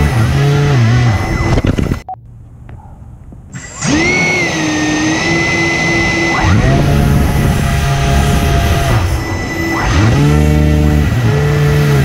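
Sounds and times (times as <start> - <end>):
hovercraft motors and fans whining: 0.0 - 12.0.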